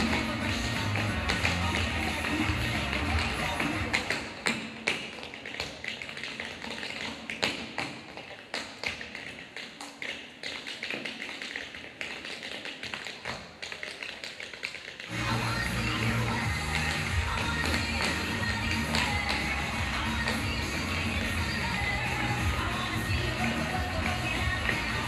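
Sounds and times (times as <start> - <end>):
backing music: 0.0 - 4.0, 15.1 - 25.0.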